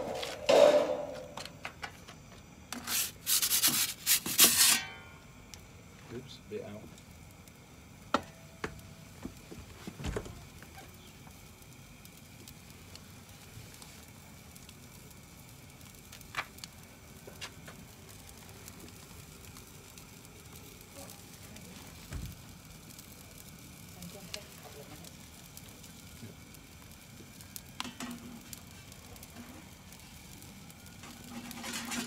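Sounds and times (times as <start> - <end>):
gas burner flame hissing: 0.0 - 32.0
sharp crackles and pops: 0.0 - 32.0.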